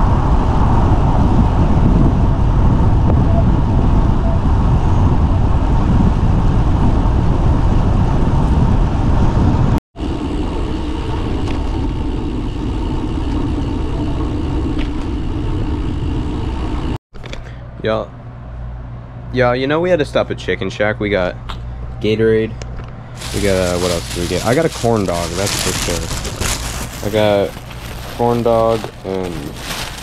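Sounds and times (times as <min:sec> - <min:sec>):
steady low rumble: 0:00.0 - 0:17.0, 0:23.1 - 0:30.0
wind rushing over microphone: 0:00.0 - 0:17.0, 0:23.2 - 0:30.0
tyre road noise: 0:22.8 - 0:30.0.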